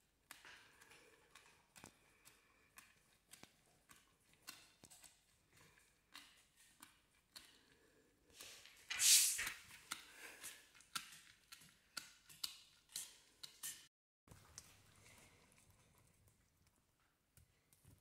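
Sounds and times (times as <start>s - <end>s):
dog gnawing a chew stick: 0.2s - 7.9s, 9.6s - 13.8s
hissy burst: 8.9s - 9.5s.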